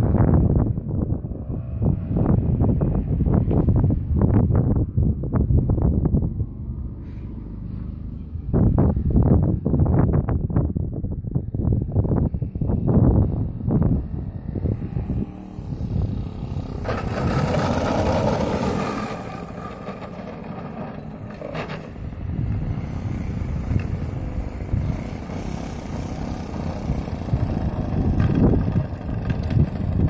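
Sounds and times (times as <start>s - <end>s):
wind gusts on microphone: 0.0s - 30.0s
model aircraft engine running: 12.2s - 30.0s.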